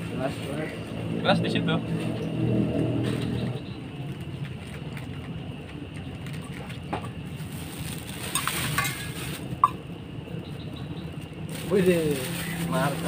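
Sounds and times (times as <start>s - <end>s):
light rain on pavement: 4.0s - 9.6s
metal cup clink: 8.3s - 9.8s.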